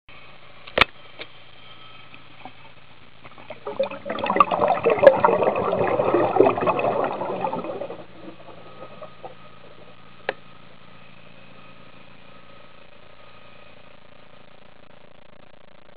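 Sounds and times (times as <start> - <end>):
underwater bubbles gurgling: 3.2 - 10.4.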